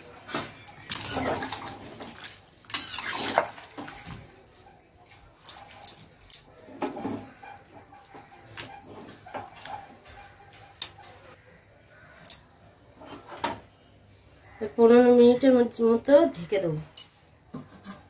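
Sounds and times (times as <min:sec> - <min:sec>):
spatula stirring curry: 0:00.0 - 0:10.5.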